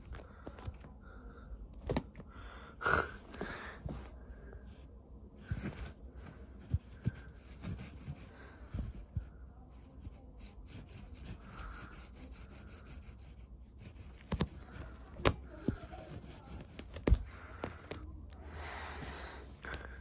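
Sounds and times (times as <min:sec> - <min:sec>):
rustling on carpet: 0:03.3 - 0:18.1.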